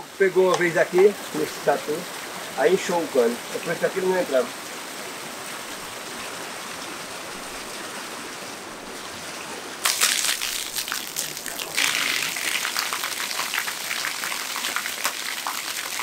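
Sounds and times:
water gushing and splashing: 0.0s - 16.0s
water running with a hiss: 0.0s - 16.0s.

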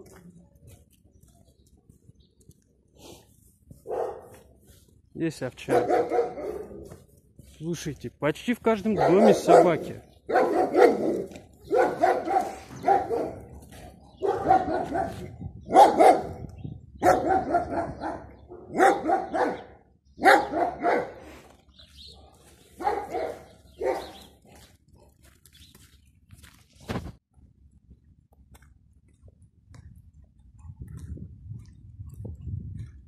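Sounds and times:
dog barking: 3.8s - 4.4s, 5.6s - 6.9s, 8.9s - 13.6s, 14.2s - 16.4s, 17.0s - 21.2s, 22.1s - 24.3s.

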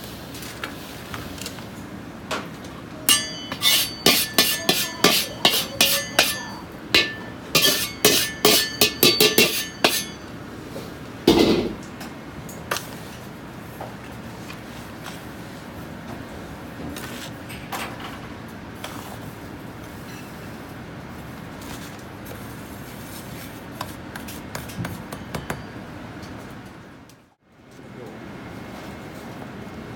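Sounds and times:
metal ladle clinking on wok: 3.1s - 10.2s.

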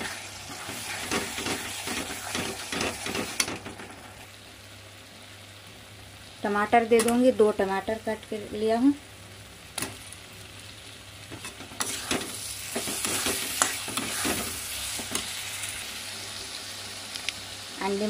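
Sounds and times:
spatula scraping and knocking pan: 0.0s - 3.9s, 11.3s - 15.3s
tomatoes sizzling in a pan: 0.0s - 18.0s.

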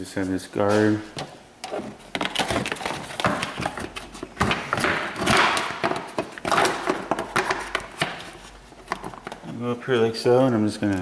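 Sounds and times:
plastic knocks and clicks: 1.2s - 8.3s.

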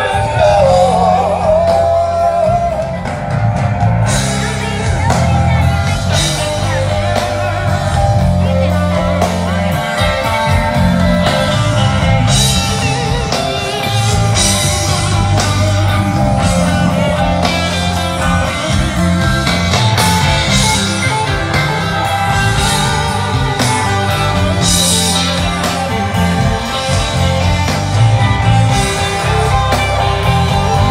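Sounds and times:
person singing: 0.0s - 3.4s
bass guitar: 0.0s - 30.9s
drums with cymbals: 0.0s - 30.9s
electric guitars: 0.0s - 30.9s.

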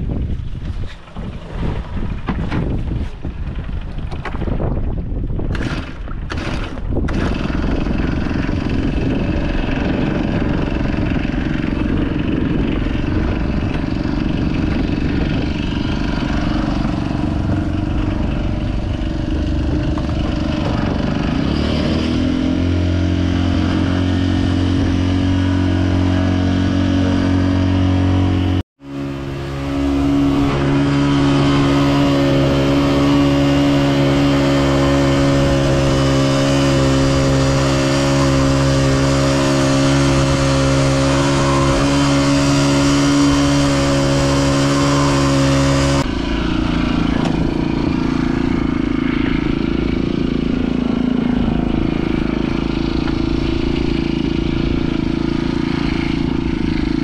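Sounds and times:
outboard motor running: 0.0s - 57.0s
rushing noise: 8.3s - 56.5s.

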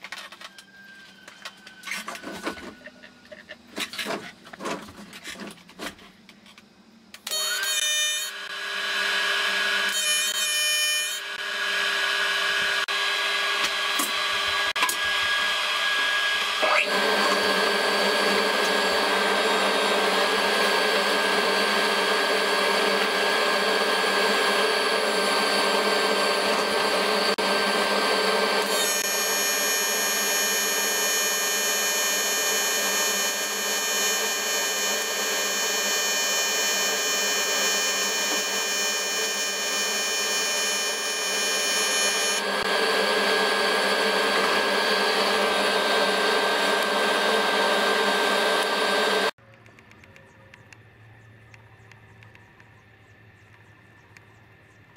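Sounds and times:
welding arc buzzing: 15.9s - 49.4s.

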